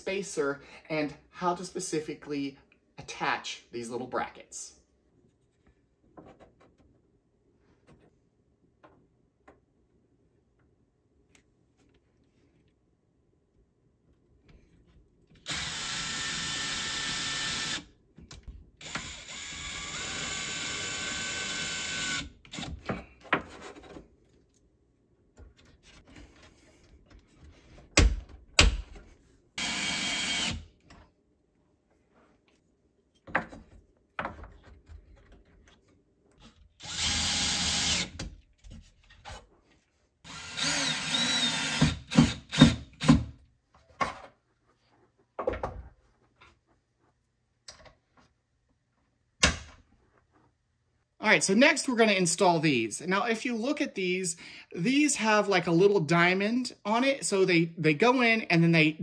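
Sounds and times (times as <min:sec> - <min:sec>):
cordless drill running: 0:15.4 - 0:17.9, 0:18.8 - 0:22.7, 0:29.6 - 0:30.7, 0:36.8 - 0:38.2, 0:40.3 - 0:42.8.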